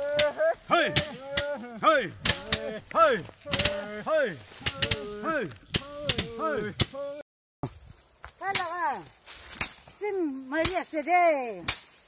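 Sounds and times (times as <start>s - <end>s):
sticks beating dried plants: 0.0s - 12.0s.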